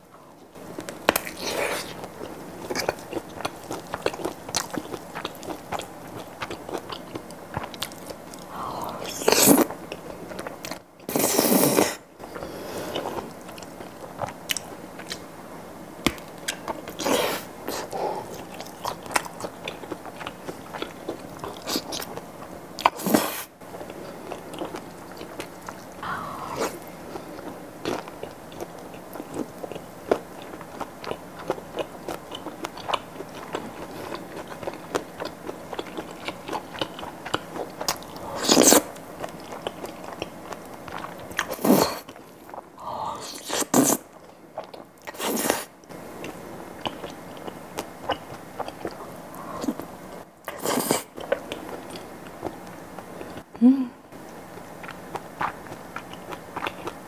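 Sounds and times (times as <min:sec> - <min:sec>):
wet chewing: 0:00.8 - 0:15.3, 0:22.8 - 0:44.0, 0:54.8 - 0:57.0.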